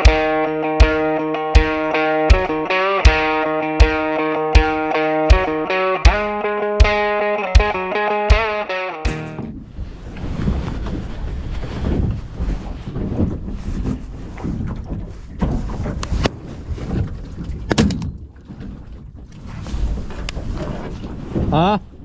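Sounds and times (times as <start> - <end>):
sharp knocks: 1.6 - 4.0, 4.6 - 9.5
water slapping against boat hull: 10.2 - 22.0.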